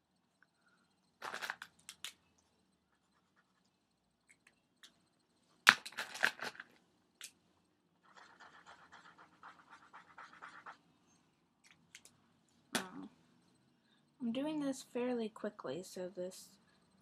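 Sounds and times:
marker scribbling on paper: 0:08.0 - 0:10.8.

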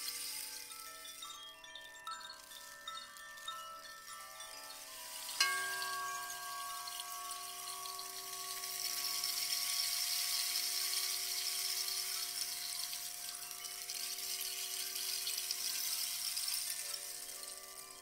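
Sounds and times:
high shimmering hiss: 0:00.0 - 0:18.0
sound-bath chime ringing: 0:00.0 - 0:18.0.

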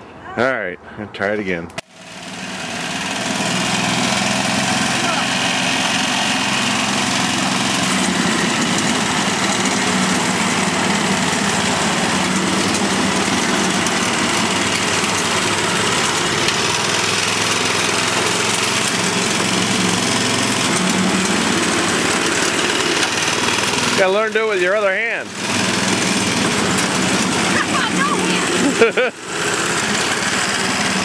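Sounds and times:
lawn mower engine running: 0:01.7 - 0:31.0.

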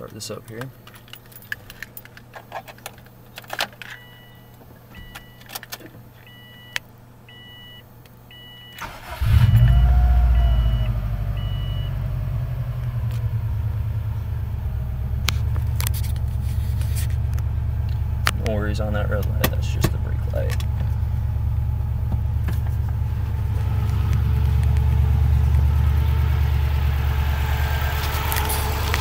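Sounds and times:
car engine cranking and idling: 0:08.0 - 0:29.0.

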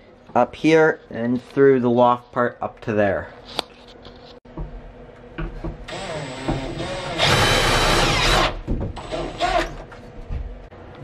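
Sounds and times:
power drill running: 0:05.9 - 0:09.7.

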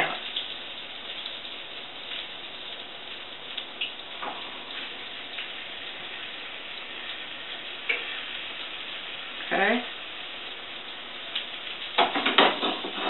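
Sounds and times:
butter sizzling in a skillet: 0:04.2 - 0:13.0.

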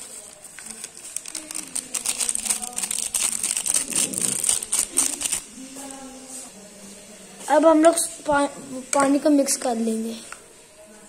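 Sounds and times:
sachet crinkling: 0:00.0 - 0:06.0.

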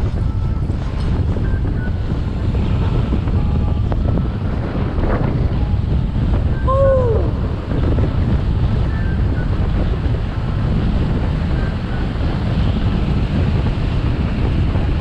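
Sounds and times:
wind buffeting microphone: 0:00.0 - 0:15.0
skateboard wheels rolling on asphalt: 0:07.4 - 0:15.0.

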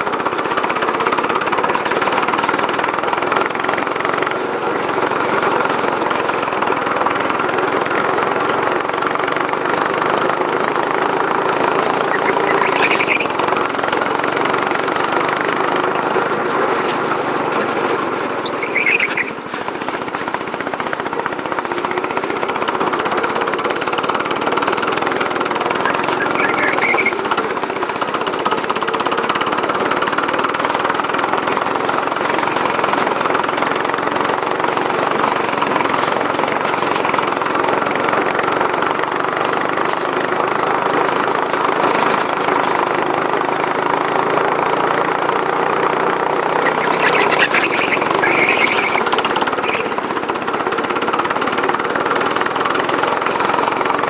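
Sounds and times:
go-kart engine running: 0:00.0 - 0:54.0
short high squeaks: 0:18.4 - 0:19.4, 0:25.9 - 0:27.3, 0:46.6 - 0:50.0.

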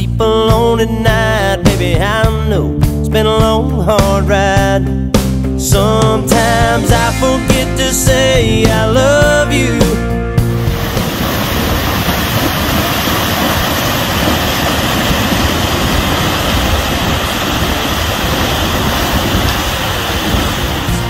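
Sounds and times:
creek and waterfall rushing: 0:10.6 - 0:21.0
horse splashing through water: 0:10.6 - 0:21.0.

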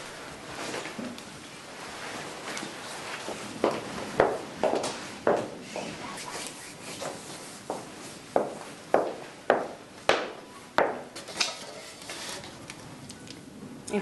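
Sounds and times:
footsteps on hard floor: 0:02.4 - 0:06.0, 0:07.0 - 0:09.8.

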